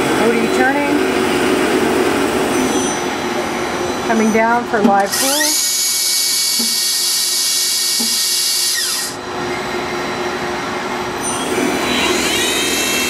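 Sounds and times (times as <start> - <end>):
spindle winding down: 5.0 - 9.2
lathe spindle whining: 5.1 - 10.2.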